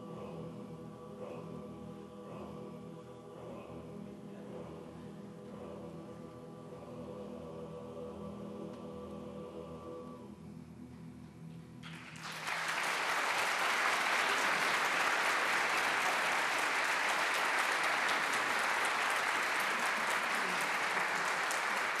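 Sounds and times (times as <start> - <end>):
men's chorus singing a cappella: 0.0 - 10.4
audience applauding: 11.8 - 22.0.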